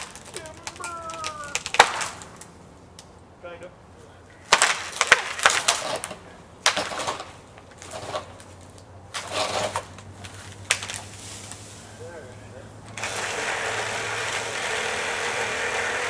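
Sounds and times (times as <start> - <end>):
limb crashing through branches: 0.0 - 2.5, 4.4 - 11.9
tree limb cracking and breaking: 0.0 - 2.6, 4.4 - 11.6.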